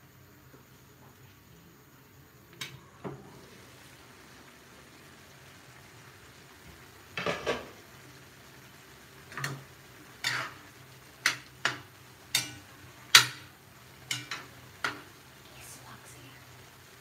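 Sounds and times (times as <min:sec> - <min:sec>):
metal ladle scraping a pan: 0:10.2 - 0:10.6.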